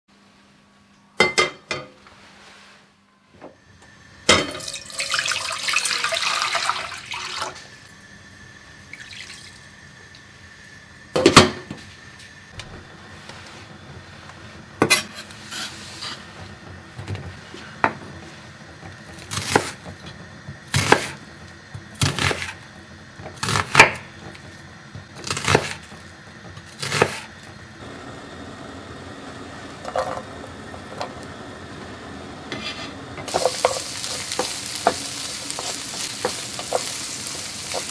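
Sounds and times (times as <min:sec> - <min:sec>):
onion sizzling in a pan: 0:03.6 - 0:37.9
water pouring into a metal pot: 0:04.5 - 0:07.6, 0:08.9 - 0:09.7
knife chopping on a wooden board: 0:20.7 - 0:21.2, 0:22.0 - 0:22.5.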